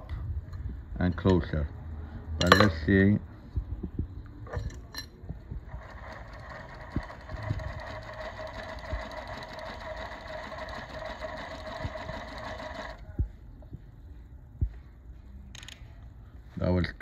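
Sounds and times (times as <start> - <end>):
industrial sewing machine running: 5.7 - 13.0
sewing machine stopping thump: 5.7 - 13.0.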